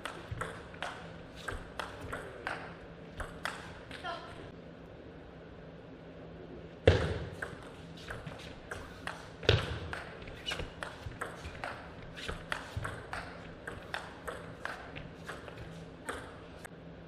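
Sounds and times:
table tennis ball clicking: 0:00.0 - 0:03.7, 0:07.4 - 0:16.6.

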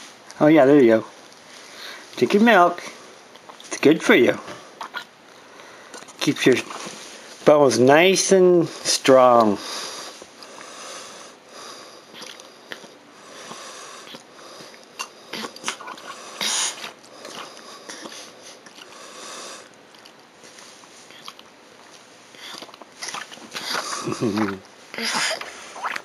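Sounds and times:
toddler sniffing: 0:15.3 - 0:19.7.

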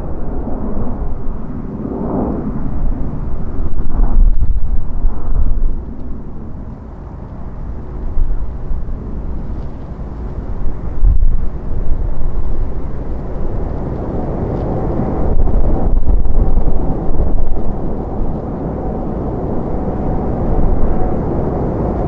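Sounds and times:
jet engine rumble: 0:00.0 - 0:22.0.

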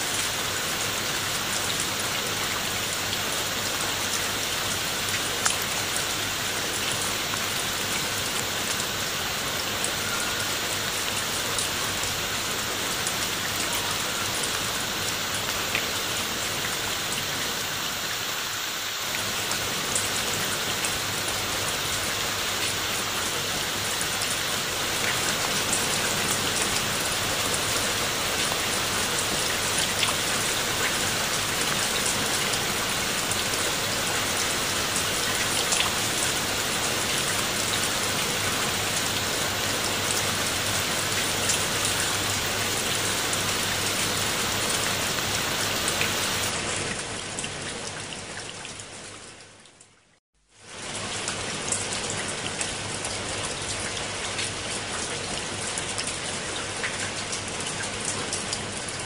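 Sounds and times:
rain on leaves and stone: 0:00.0 - 0:59.0
rain drop ticks: 0:05.4 - 0:05.6.

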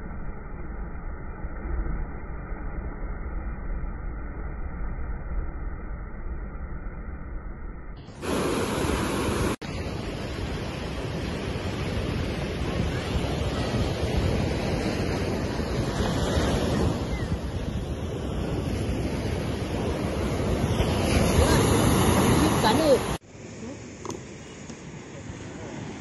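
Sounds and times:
wind rumbling on microphone: 0:00.0 - 0:23.2
sea surf on sandy beach: 0:08.1 - 0:26.0.

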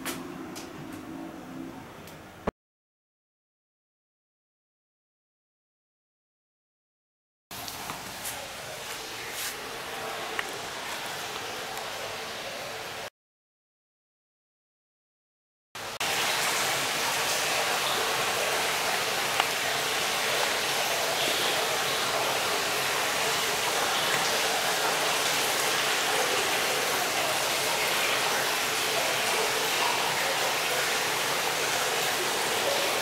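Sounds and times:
running water rushing: 0:07.5 - 0:13.1, 0:15.8 - 0:33.0.

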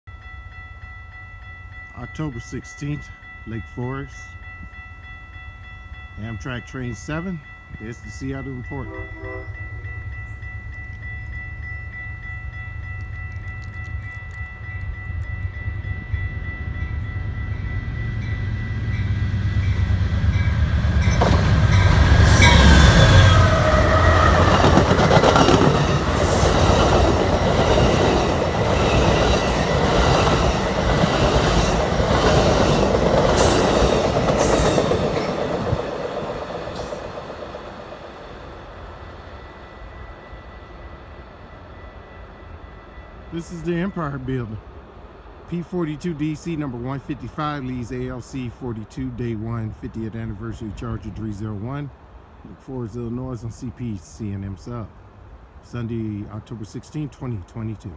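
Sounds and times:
crossing bell ringing: 0:00.0 - 0:51.8
locomotive rumble: 0:03.1 - 0:39.0
train wheel clatter on rails: 0:21.0 - 0:37.8.

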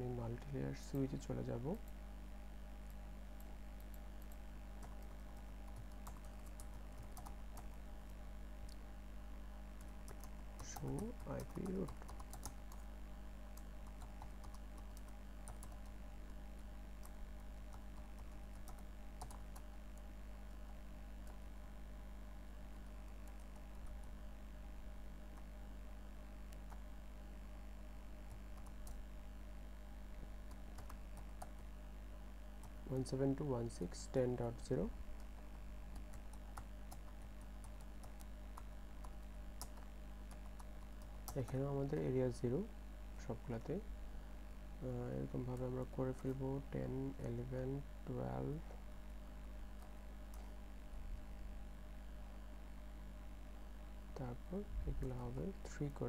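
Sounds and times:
steady low hum: 0:00.0 - 0:56.0
keyboard typing clicks: 0:02.8 - 0:08.8, 0:09.8 - 0:12.9, 0:13.5 - 0:20.1, 0:30.4 - 0:31.6, 0:35.2 - 0:41.6.

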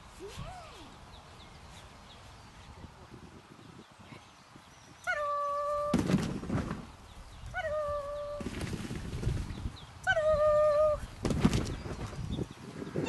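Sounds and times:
rustling noise: 0:05.7 - 0:07.3, 0:08.4 - 0:09.8, 0:11.1 - 0:13.0.

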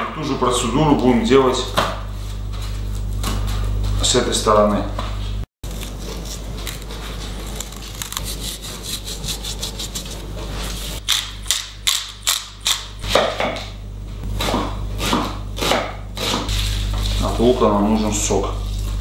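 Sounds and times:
sharp crunchy strokes: 0:05.2 - 0:13.3, 0:14.2 - 0:19.0
hands rubbing meat and onion: 0:05.8 - 0:11.0.

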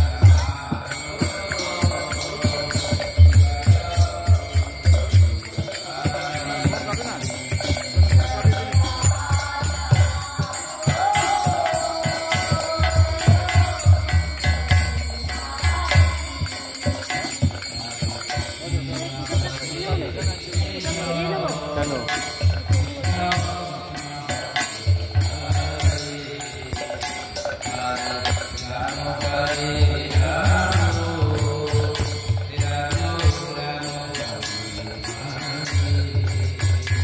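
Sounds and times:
person singing: 0:00.0 - 0:27.1
small hand cymbals clashing: 0:00.0 - 0:37.0.

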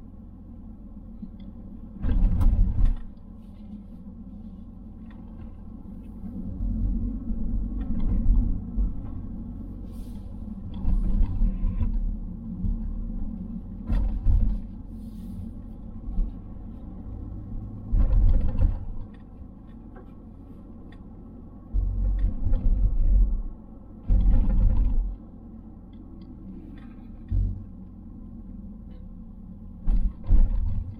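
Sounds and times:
car engine and road noise drone: 0:00.0 - 0:30.9
low rumbles: 0:00.0 - 0:30.9.

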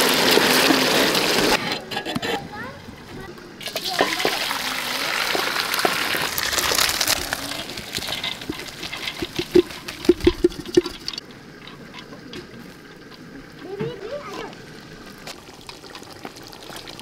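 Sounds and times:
water gushing into a colander: 0:00.0 - 0:01.6, 0:03.6 - 0:11.2, 0:14.2 - 0:17.0.

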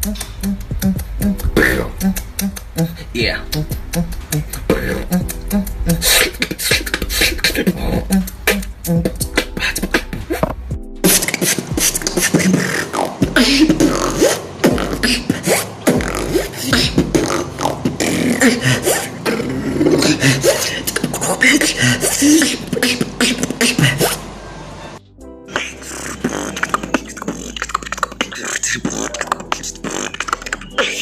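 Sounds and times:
man beatboxing: 0:00.0 - 0:24.2, 0:25.5 - 0:31.0.

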